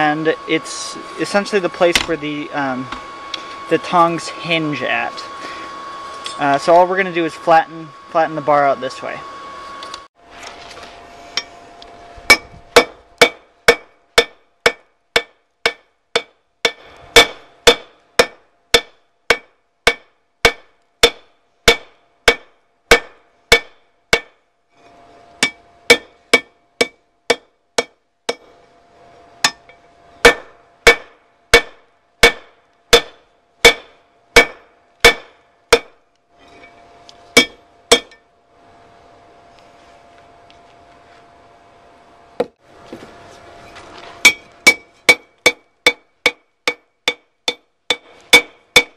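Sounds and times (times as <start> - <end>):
anvil ringing: 25.4 - 28.4, 37.4 - 38.2, 44.2 - 48.9
hammer clanging on anvil: 37.4 - 38.2, 44.2 - 48.9.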